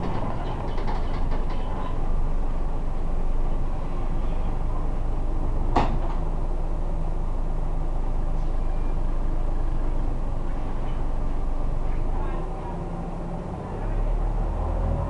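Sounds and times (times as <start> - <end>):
bus engine rumble: 0.0 - 15.0.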